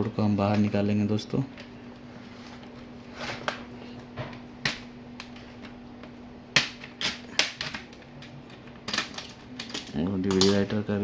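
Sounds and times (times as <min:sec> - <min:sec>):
steady low hum: 0:00.0 - 0:11.0
plastic clips clicking and snapping: 0:06.6 - 0:10.8.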